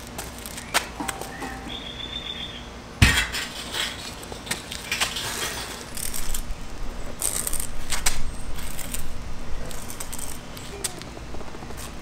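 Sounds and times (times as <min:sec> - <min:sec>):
metal post thud on concrete: 0:03.0 - 0:04.0.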